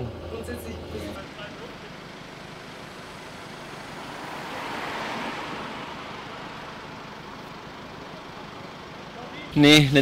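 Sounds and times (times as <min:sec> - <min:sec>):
car driving past: 0:00.5 - 0:08.5.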